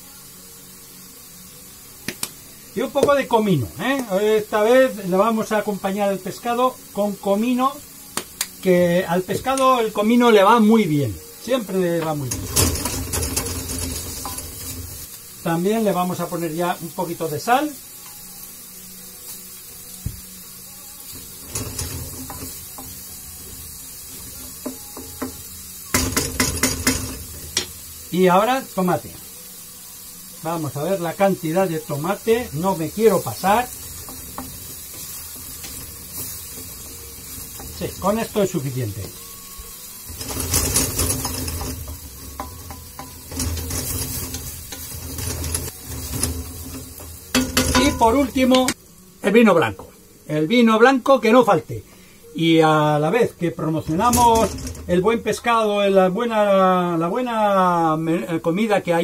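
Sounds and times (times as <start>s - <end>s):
vegetables sizzling in a pan: 0.0s - 59.0s
utensil scraping pan: 12.0s - 15.1s, 21.2s - 23.0s, 40.0s - 48.8s, 53.8s - 55.4s.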